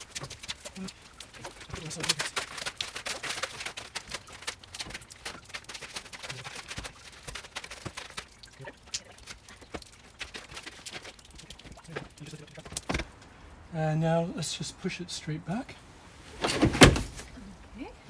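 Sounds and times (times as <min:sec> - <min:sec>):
bed platform knocking and sliding: 0:16.4 - 0:17.2.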